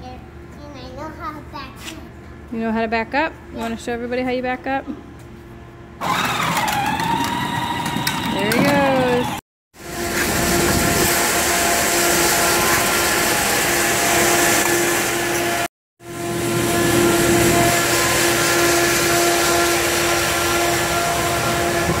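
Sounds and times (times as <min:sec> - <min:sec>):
machine hum: 0:04.8 - 0:22.0
fan air rushing: 0:09.8 - 0:22.0.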